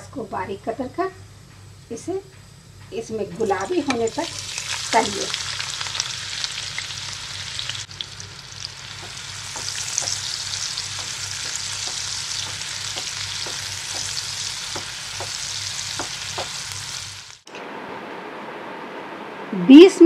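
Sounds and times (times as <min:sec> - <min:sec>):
onions sizzling in oil: 0:03.4 - 0:17.5
spatula tapping a pan: 0:08.9 - 0:16.7.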